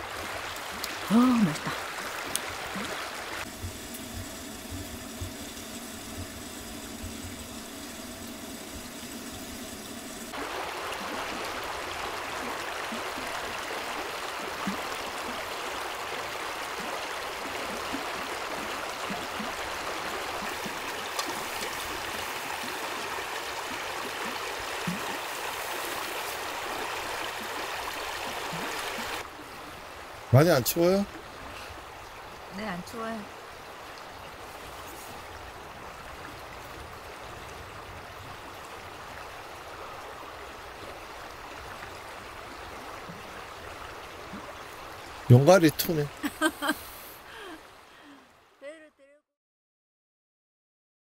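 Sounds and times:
stream flowing: 0:00.0 - 0:48.7.

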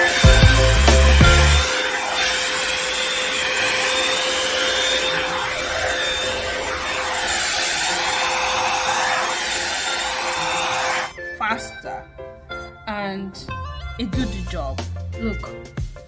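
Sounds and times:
hot-air brush blowing: 0:00.0 - 0:11.1
motor whine: 0:00.0 - 0:11.1.

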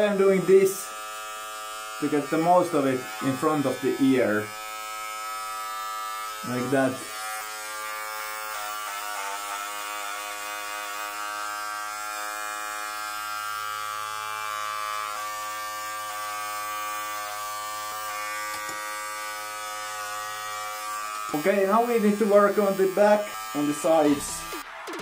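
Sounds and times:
electric hair clipper buzzing: 0:00.0 - 0:25.0.

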